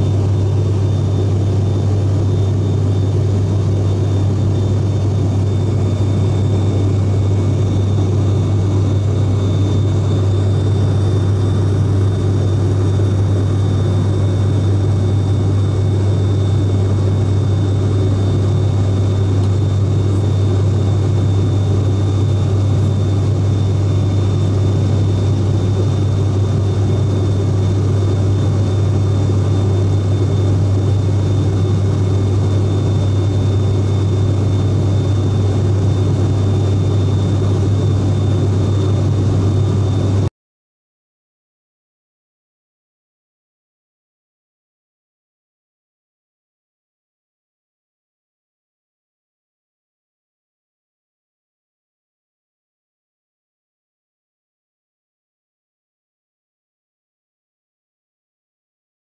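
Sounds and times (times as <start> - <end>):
propeller hum: 0.0 - 40.3.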